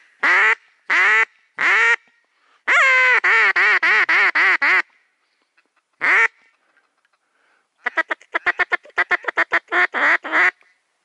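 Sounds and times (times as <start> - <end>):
duck quacking: 7.8 - 10.6.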